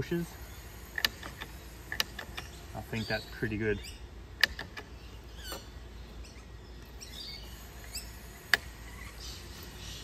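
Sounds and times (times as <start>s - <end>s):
bird chirps: 1.5s - 10.0s.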